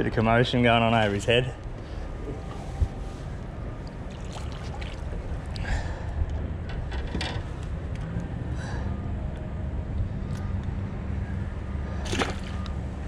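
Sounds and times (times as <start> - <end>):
low rumble of wind: 0.0 - 13.0
water sloshing: 2.4 - 5.7, 11.9 - 13.0.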